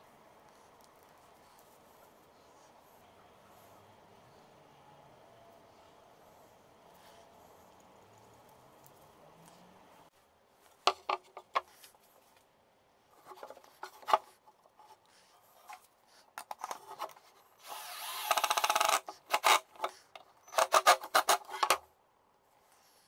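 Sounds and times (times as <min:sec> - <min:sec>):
cordless drill driving screws: 0:17.6 - 0:21.8.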